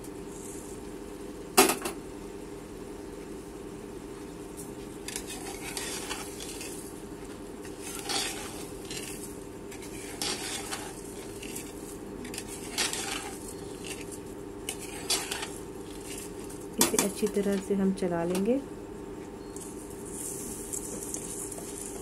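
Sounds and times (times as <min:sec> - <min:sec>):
steady low hum: 0:00.0 - 0:22.0
metal spoon scraping in pot: 0:05.1 - 0:06.9, 0:07.6 - 0:17.5.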